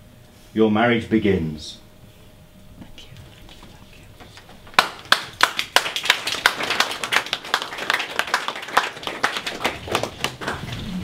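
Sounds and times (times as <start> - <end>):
small audience applauding: 4.6 - 11.0.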